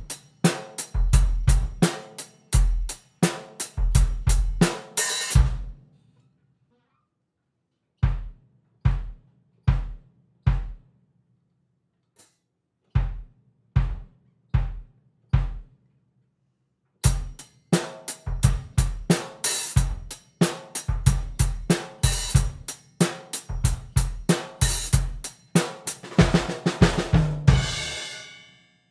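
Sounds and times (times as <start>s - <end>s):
drum kit groove: 0.0s - 5.9s, 8.0s - 10.9s, 13.0s - 15.8s, 17.0s - 28.6s
bass drum kicks: 5.4s - 5.8s, 8.0s - 10.8s, 13.0s - 15.7s.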